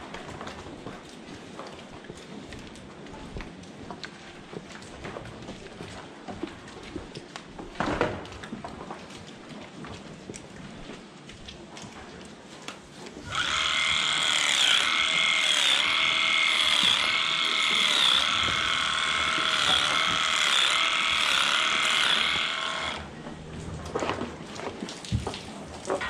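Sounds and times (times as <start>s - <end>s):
electric hair clippers running: 13.2s - 23.1s.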